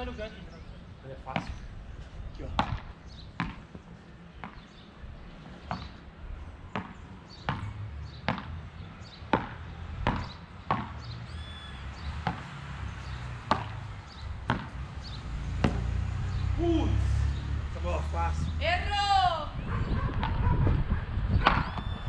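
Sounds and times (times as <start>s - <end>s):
paddles hitting a ball: 2.6s - 3.8s, 5.6s - 6.0s, 6.7s - 8.6s, 9.3s - 11.2s, 12.1s - 14.8s, 15.6s - 15.9s.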